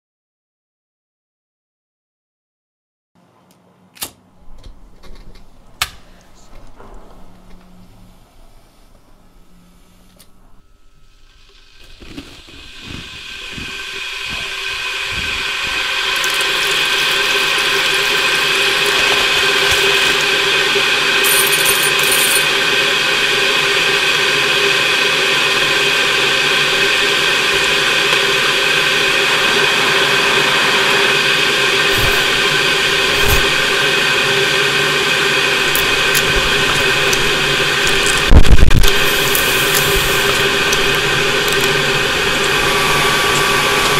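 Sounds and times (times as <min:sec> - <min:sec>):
mechanical drone with held tones: 0:04.3 - 0:43.9
loud burst: 0:28.3 - 0:43.9.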